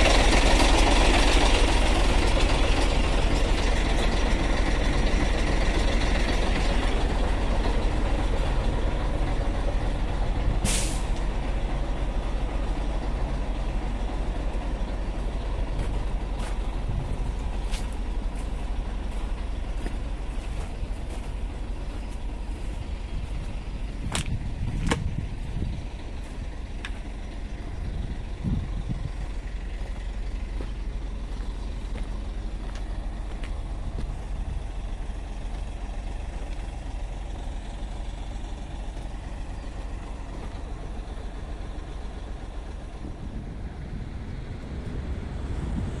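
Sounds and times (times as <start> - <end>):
diesel truck engine running: 0.0 - 46.0
air brake hiss: 10.6 - 11.2.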